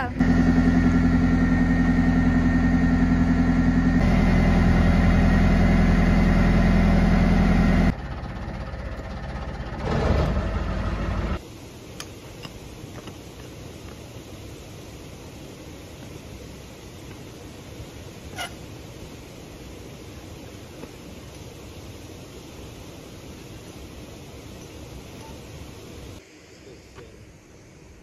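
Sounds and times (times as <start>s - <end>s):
diesel engine low throb: 0.0s - 11.4s.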